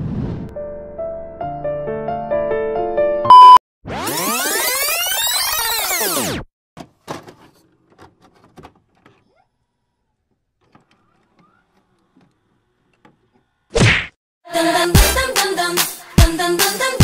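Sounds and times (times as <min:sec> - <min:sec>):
music: 0:00.5 - 0:03.3, 0:14.5 - 0:17.0.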